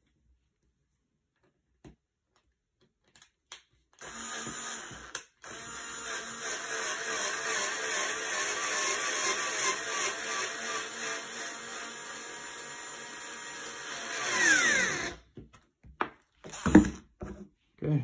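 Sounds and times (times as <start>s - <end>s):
cordless screwdriver running: 4.0s - 15.2s.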